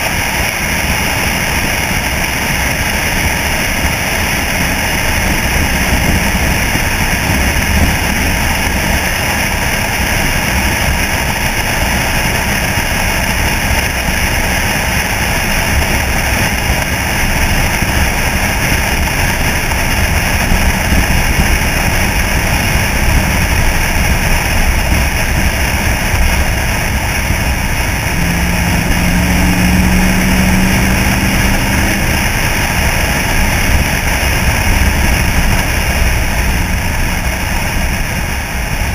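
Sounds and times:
pickup truck engine cruising: 0.0 - 38.9
road noise: 0.0 - 38.9
steady low hum: 0.0 - 38.9
wind buffeting microphone: 0.0 - 38.9.

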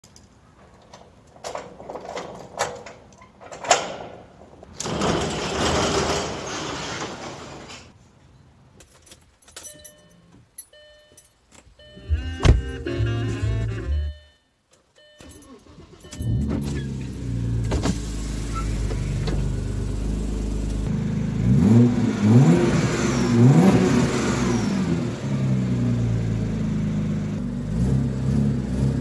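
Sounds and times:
metal roll-up door rattling: 0.6 - 7.9
keys jangling at a padlock: 8.8 - 11.7
loud music: 12.1 - 14.2.

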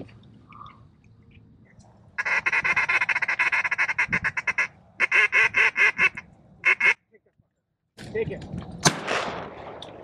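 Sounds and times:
duck call quacking: 2.2 - 7.0.

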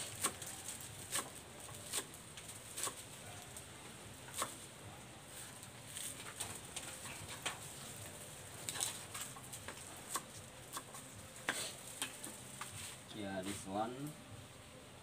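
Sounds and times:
knife chopping on wooden board: 0.0 - 0.5, 1.1 - 2.1, 2.8 - 3.0, 4.3 - 4.6, 9.6 - 12.8.

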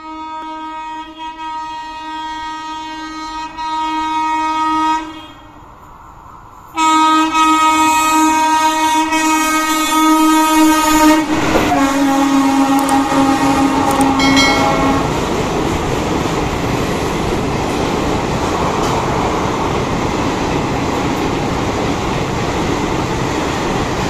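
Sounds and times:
locomotive horn blasts: 0.0 - 5.6, 6.8 - 15.4
train rushing past: 4.8 - 24.0.

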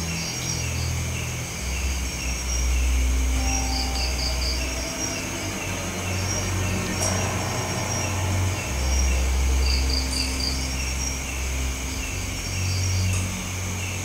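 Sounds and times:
night insects chirping: 0.0 - 14.0
low rumble: 2.8 - 9.7.

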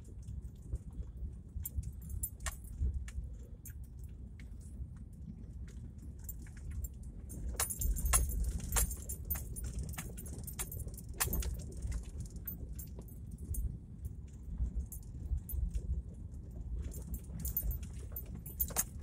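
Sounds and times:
low tyre rumble on cobblestones: 0.0 - 19.0
sharp rattles and clicks: 1.6 - 2.9, 6.2 - 13.6, 16.8 - 19.0.

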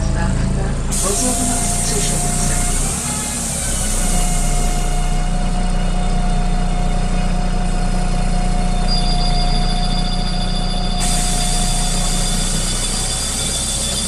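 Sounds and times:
high-pitched door warning beeping: 0.0 - 5.2, 8.6 - 14.0
diesel bus engine idling: 0.0 - 14.0.

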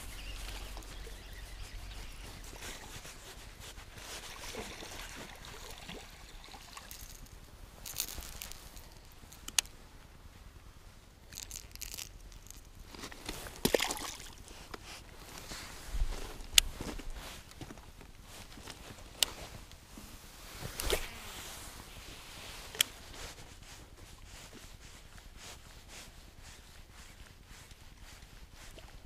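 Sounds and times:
faint water splashing: 0.0 - 9.5, 13.3 - 17.0
footsteps crunching on stones: 6.8 - 9.6.

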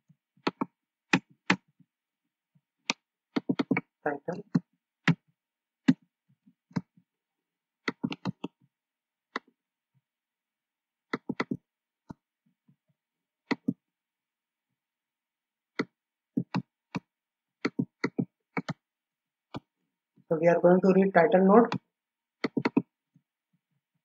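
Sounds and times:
keyboard keystrokes: 22.4 - 22.9.

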